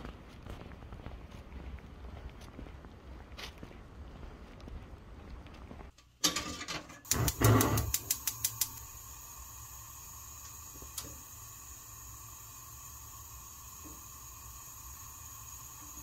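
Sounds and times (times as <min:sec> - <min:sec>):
gas burner hissing: 0:06.2 - 0:16.0
gas igniter clicks: 0:07.0 - 0:09.1.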